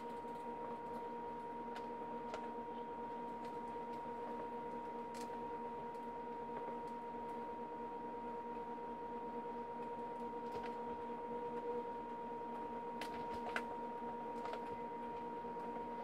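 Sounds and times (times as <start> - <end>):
steady hum: 0.0 - 16.0.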